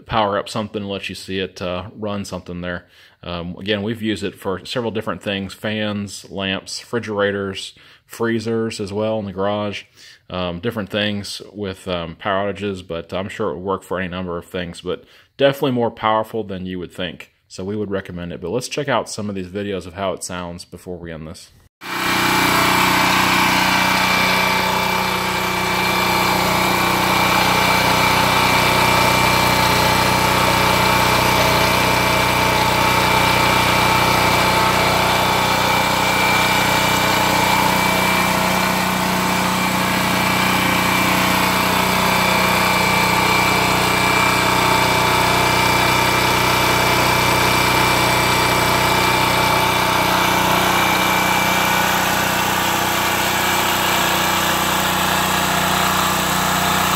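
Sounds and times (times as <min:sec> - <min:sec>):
portable generator running: 0:21.8 - 0:56.9.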